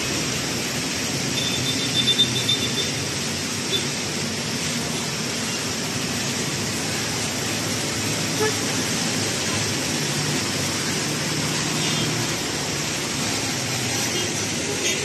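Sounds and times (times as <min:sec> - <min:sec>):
tyres hissing on wet road: 0:00.0 - 0:15.0.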